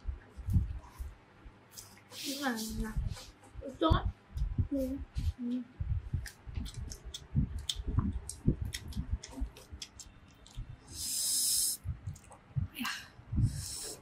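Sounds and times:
soft low thumps: 0:02.8 - 0:09.8, 0:11.8 - 0:13.6
wet chewing: 0:06.2 - 0:10.7, 0:12.0 - 0:12.4
loud hissing breath: 0:10.9 - 0:11.8, 0:13.4 - 0:14.0.

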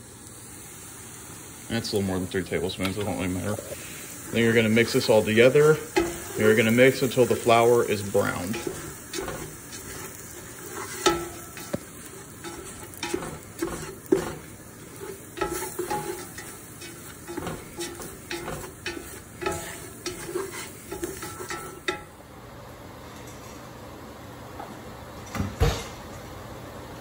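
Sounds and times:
light sizzle: 0:00.0 - 0:27.0
spatula scraping a stockpot: 0:04.3 - 0:22.0.

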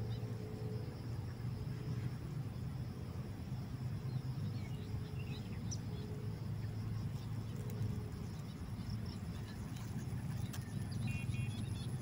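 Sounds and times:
faint bird chirps: 0:04.1 - 0:12.0.

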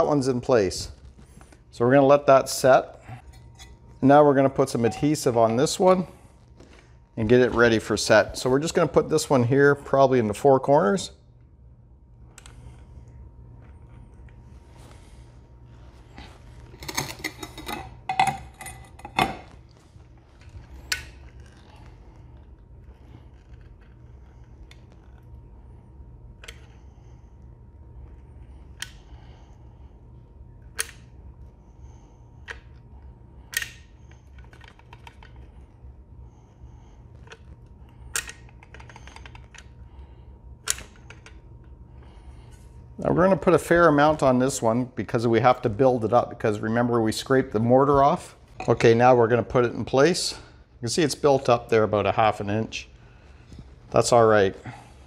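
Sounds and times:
low steady hum: 0:00.0 - 0:55.0.

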